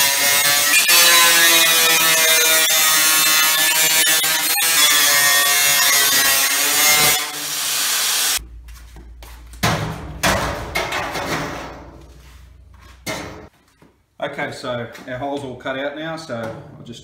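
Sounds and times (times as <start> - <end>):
angle grinder cutting sheet steel: 0.0 - 8.4
knocks and scrapes: 8.4 - 13.8.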